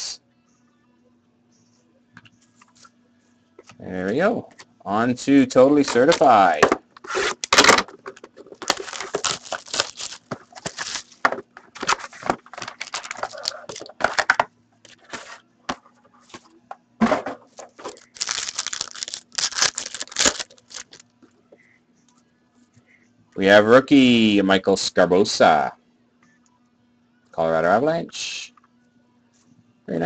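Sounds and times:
card pack wrappers torn and crinkled: 0:08.5 - 0:14.3, 0:17.7 - 0:21.0.

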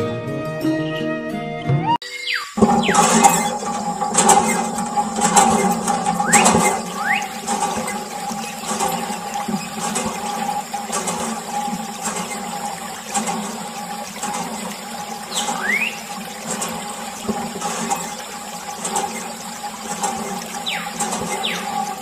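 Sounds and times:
steady hum: 0:02.6 - 0:22.0
water stream splashing: 0:02.6 - 0:22.0
rising whistle: 0:06.2 - 0:07.4.

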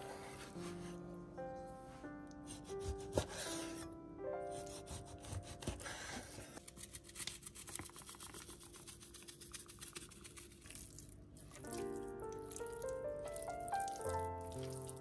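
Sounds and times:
knife cutting raw chicken: 0:02.6 - 0:03.8, 0:04.6 - 0:06.2.

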